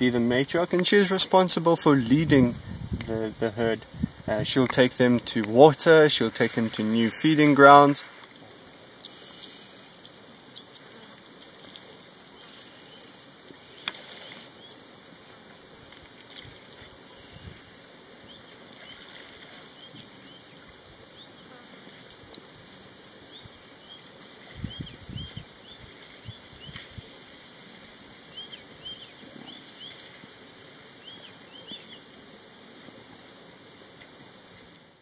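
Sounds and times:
small birds chirping: 0:09.0 - 0:11.6, 0:12.4 - 0:15.0, 0:19.8 - 0:22.4, 0:23.3 - 0:27.1, 0:28.3 - 0:30.2, 0:31.0 - 0:32.0.

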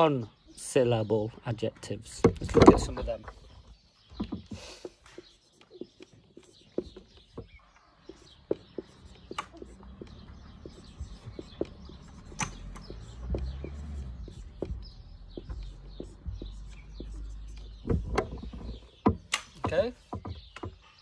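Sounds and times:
marker pen writing on whiteboard: 0:05.1 - 0:21.0.

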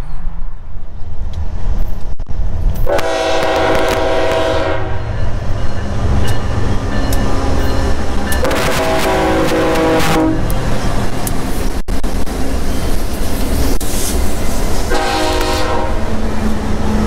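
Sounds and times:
locomotive air horn: 0:02.8 - 0:05.2, 0:08.4 - 0:10.5, 0:14.9 - 0:16.1.

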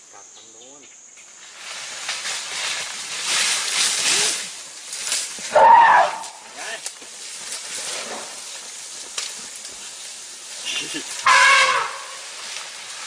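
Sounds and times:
elephant charging through brush: 0:01.4 - 0:13.0
elephant call: 0:05.4 - 0:06.8, 0:10.7 - 0:12.6.

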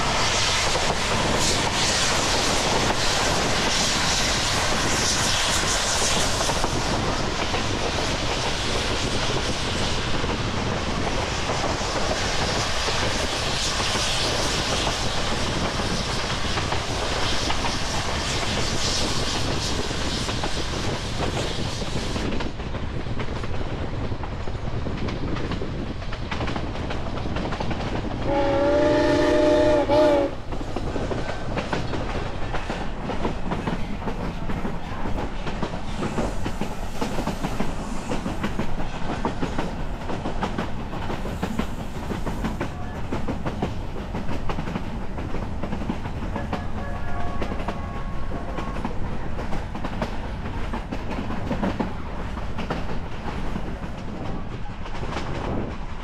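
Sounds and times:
train coach rumbling: 0:00.0 - 0:56.0
steam whistle blast: 0:28.3 - 0:30.4.

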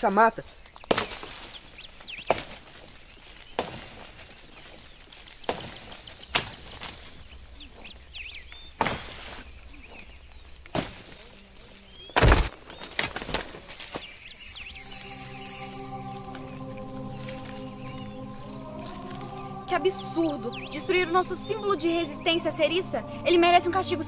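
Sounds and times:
birds chirping faintly: 0:00.0 - 0:24.0
axe chopping tree trunk: 0:00.8 - 0:01.4, 0:02.3 - 0:02.6, 0:03.6 - 0:04.0, 0:05.5 - 0:06.6, 0:08.8 - 0:09.2.

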